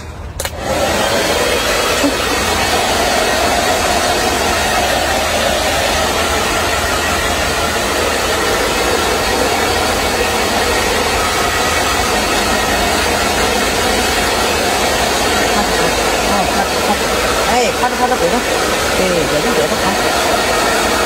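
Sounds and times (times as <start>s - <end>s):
hair dryer running: 0.0s - 21.0s.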